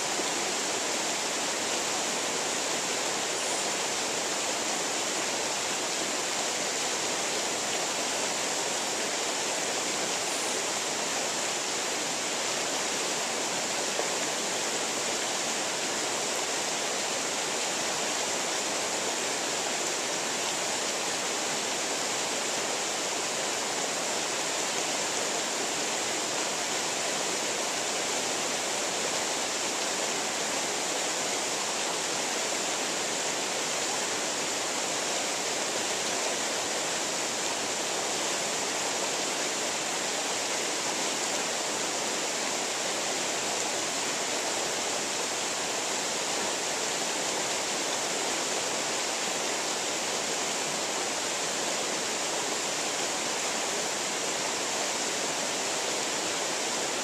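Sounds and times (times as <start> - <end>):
creek rushing over rocks: 0.0 - 57.0.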